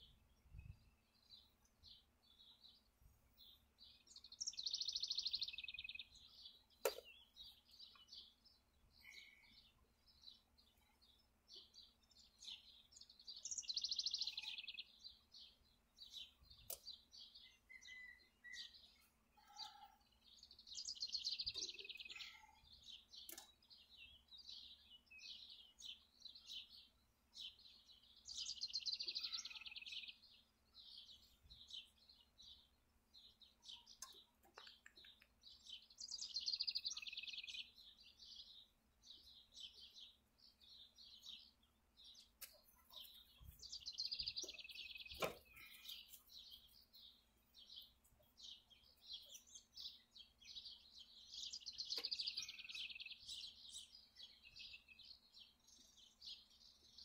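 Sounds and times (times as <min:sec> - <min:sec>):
songbirds singing: 0:00.0 - 0:57.0
faint clicks of hand work on engine: 0:23.2 - 0:23.6, 0:33.9 - 0:35.5.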